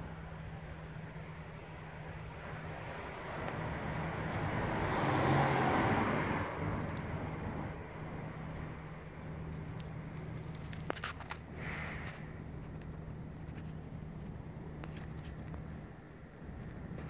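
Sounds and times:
steady low hum: 0:00.0 - 0:04.8, 0:06.2 - 0:17.0
car driving past: 0:02.9 - 0:07.8.

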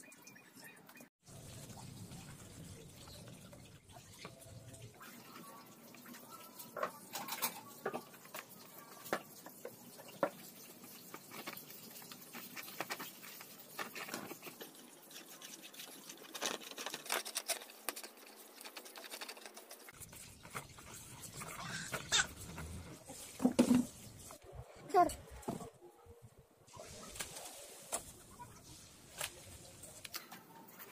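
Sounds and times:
brush scrubbing plastic basin: 0:04.2 - 0:25.0.

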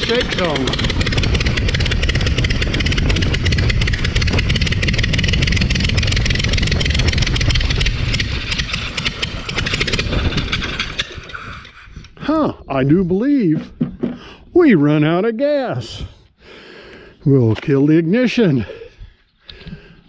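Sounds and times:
aircraft engine and propeller: 0:00.0 - 0:12.2.

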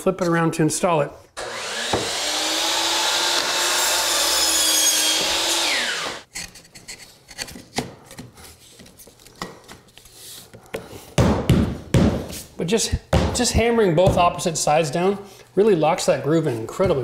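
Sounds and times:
saw motor winding down: 0:01.4 - 0:06.2
miter saw cutting wood: 0:01.4 - 0:06.3.

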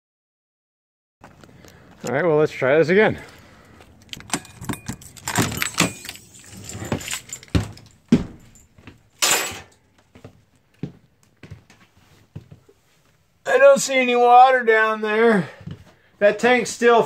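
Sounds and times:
keys jangling in door lock: 0:04.0 - 0:09.8
footsteps on floor: 0:06.7 - 0:09.1, 0:10.0 - 0:13.2.

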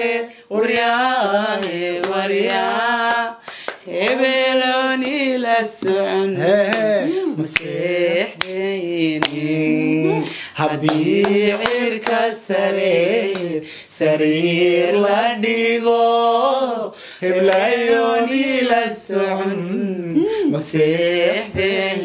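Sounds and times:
voices singing unaccompanied: 0:00.0 - 0:22.0
sharp handclaps: 0:01.6 - 0:04.2, 0:07.6 - 0:07.8, 0:08.4 - 0:08.6, 0:09.2 - 0:09.4, 0:10.2 - 0:12.3, 0:13.3 - 0:13.6.

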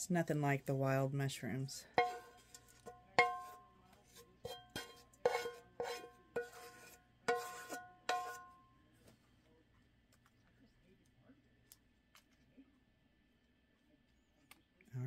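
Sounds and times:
wooden spoon tapping frying pan: 0:02.0 - 0:03.6, 0:07.3 - 0:08.5.

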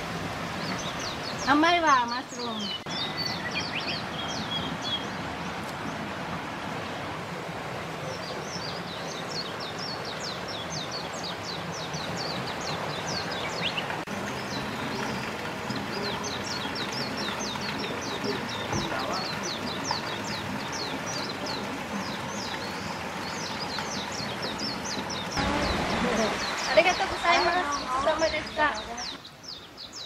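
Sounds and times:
running water: 0:00.0 - 0:30.0
bird singing high chirps: 0:00.6 - 0:05.2.

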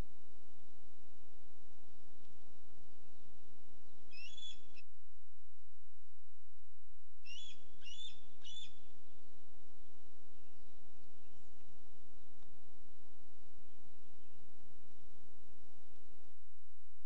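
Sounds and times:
eagle chirping: 0:04.1 - 0:04.8, 0:07.2 - 0:08.9.

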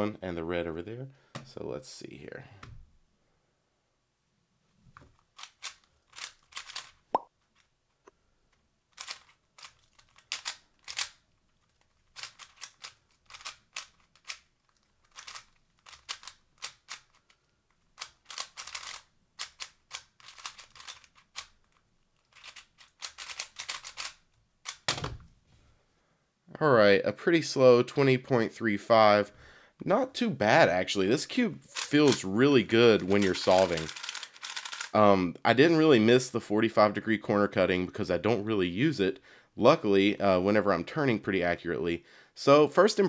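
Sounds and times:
puzzle cube plastic clicks: 0:05.0 - 0:07.7, 0:08.5 - 0:25.2, 0:31.6 - 0:35.0.

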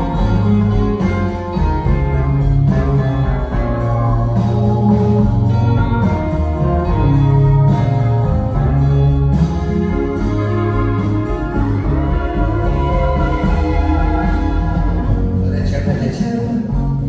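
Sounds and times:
guitar: 0:00.0 - 0:17.0
sustained bass notes: 0:00.0 - 0:17.0.

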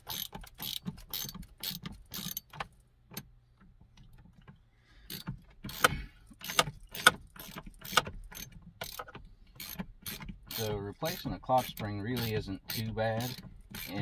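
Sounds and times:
hand tools clicking and knocking: 0:04.1 - 0:14.0.

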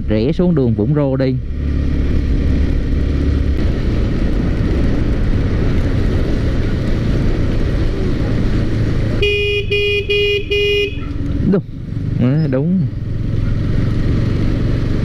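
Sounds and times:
motorcycle engine running: 0:00.0 - 0:15.0
wind rushing: 0:01.4 - 0:09.2
vehicle horn beeping: 0:09.2 - 0:11.2.

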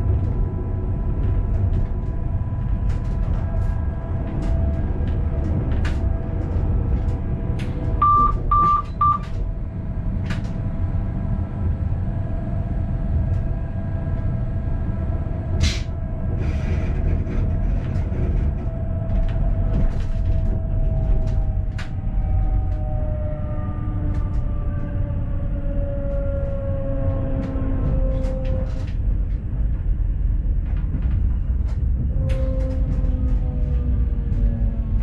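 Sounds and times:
train wheels rumbling on rail: 0:00.0 - 0:35.0
short beeps: 0:08.0 - 0:09.2.

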